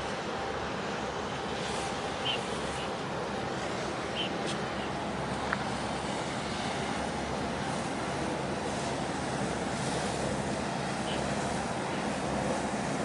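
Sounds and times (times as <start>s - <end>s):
water noise: 0.0s - 13.0s.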